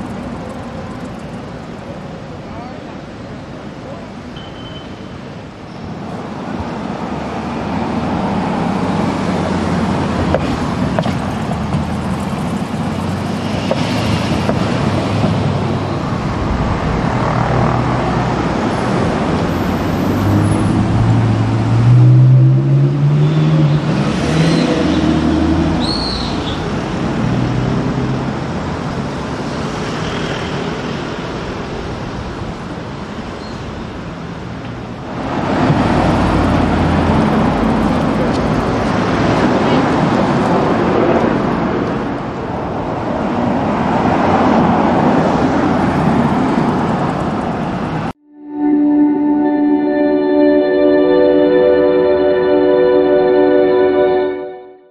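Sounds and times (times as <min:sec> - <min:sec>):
car engine accelerating: 0:08.9 - 0:25.8.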